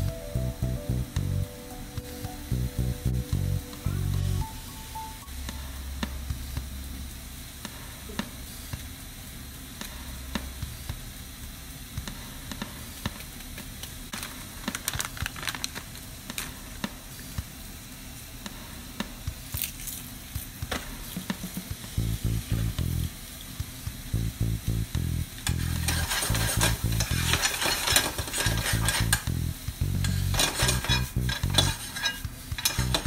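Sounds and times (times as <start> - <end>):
food sizzling in a frying pan: 0.3 - 33.0
oil popping and crackling: 12.5 - 17.4, 19.4 - 33.0.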